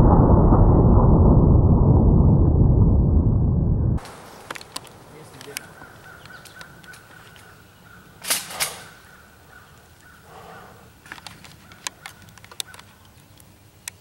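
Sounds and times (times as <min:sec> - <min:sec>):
small clicks and rustles: 0:04.0 - 0:07.5, 0:11.0 - 0:14.0
crow cawing: 0:05.6 - 0:08.2, 0:08.8 - 0:10.8.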